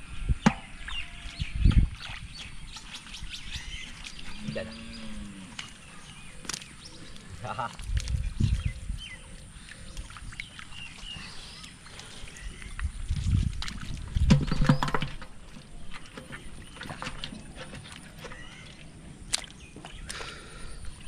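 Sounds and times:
hands splashing in shallow water: 5.5s - 20.6s.

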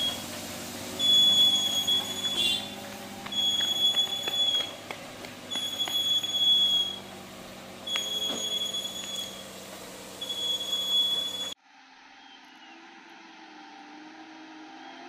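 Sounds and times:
engine droning: 0.0s - 11.6s
high beeping tone: 1.0s - 2.7s, 7.9s - 9.4s, 10.2s - 11.6s.

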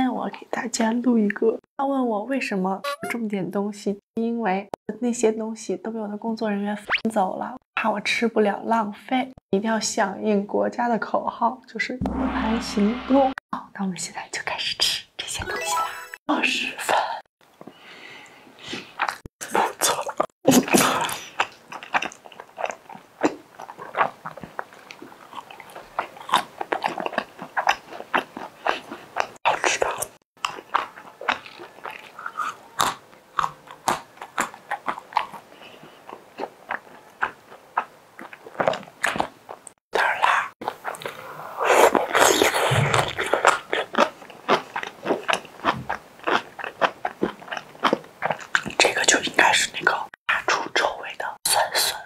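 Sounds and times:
person chewing food: 19.9s - 48.8s
slurping noodles: 40.1s - 45.7s.

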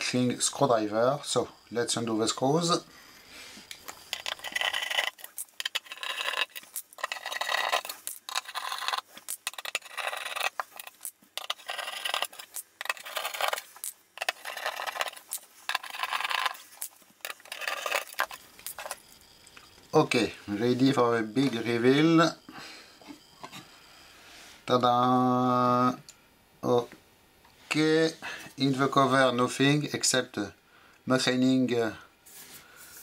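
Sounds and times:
screwdriver scraping and clicking: 3.8s - 19.0s.

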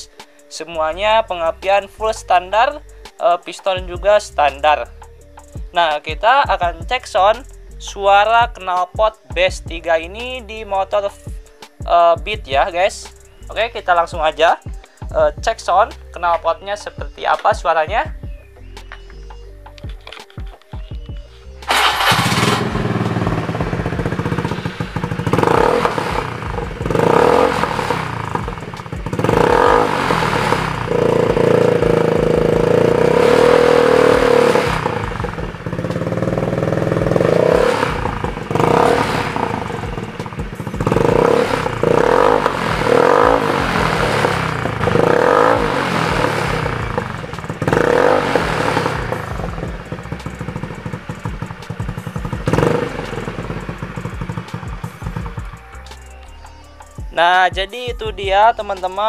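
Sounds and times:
scooter engine revving: 21.6s - 55.7s.

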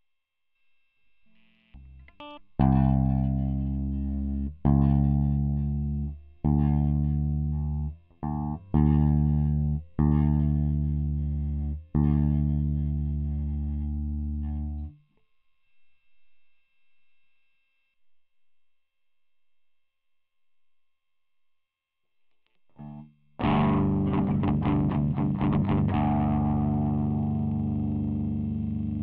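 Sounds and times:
electric guitar notes and chords: 1.8s - 14.9s, 22.8s - 29.0s.

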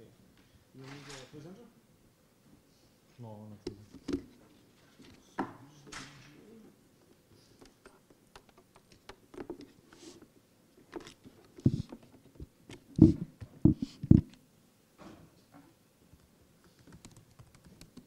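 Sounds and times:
heavy thumps: 11.6s - 14.3s.

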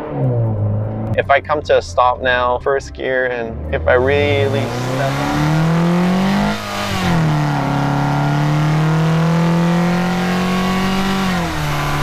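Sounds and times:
intake induction noise: 0.0s - 8.3s
car engine revving: 0.0s - 12.0s.

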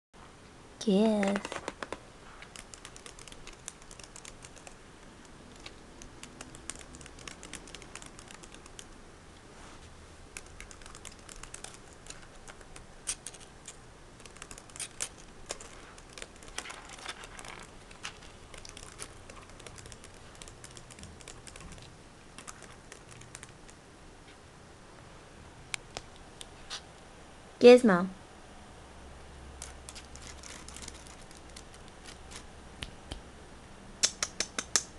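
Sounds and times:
laptop keyboard keys clicking: 1.2s - 9.0s, 10.3s - 23.8s, 29.6s - 32.4s.

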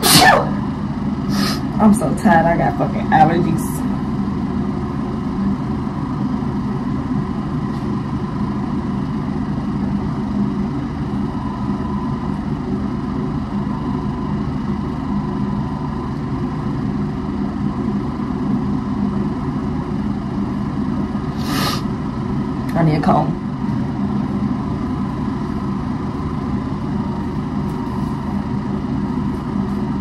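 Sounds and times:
motor humming: 0.0s - 1.8s.

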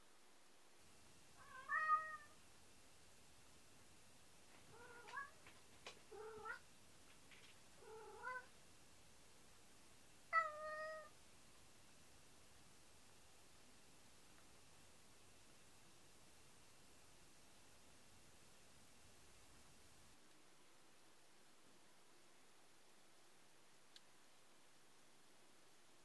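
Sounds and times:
cat meowing: 1.4s - 2.4s, 4.7s - 5.4s, 6.1s - 6.6s, 7.8s - 8.5s, 10.3s - 11.1s.

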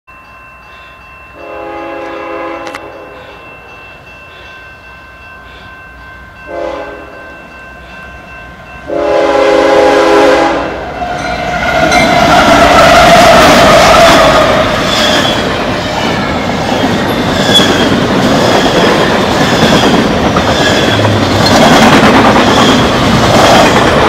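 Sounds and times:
crossing bell ringing: 0.1s - 24.0s
locomotive engine and wheels on rail: 0.1s - 24.0s
locomotive horn blasts: 1.4s - 3.4s, 6.5s - 7.1s, 8.9s - 14.8s.

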